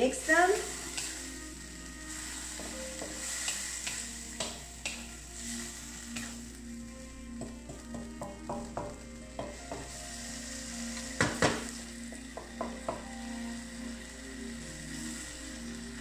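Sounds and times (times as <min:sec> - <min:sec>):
vegetables sizzling in a wok: 0:00.0 - 0:16.0
spatula knocking against pan: 0:07.4 - 0:09.9, 0:11.2 - 0:13.1.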